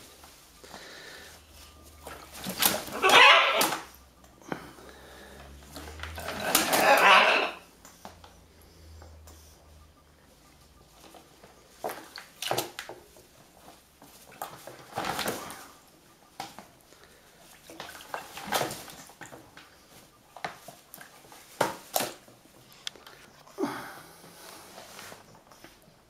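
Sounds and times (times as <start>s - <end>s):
water splashing: 2.0s - 3.9s, 17.4s - 19.4s
wings flapping: 2.3s - 3.8s, 6.2s - 7.5s.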